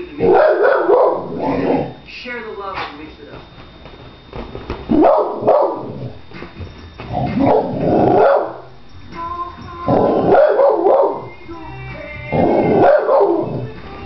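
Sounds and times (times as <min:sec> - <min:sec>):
puppy barking: 0:05.0 - 0:05.9, 0:07.4 - 0:08.6.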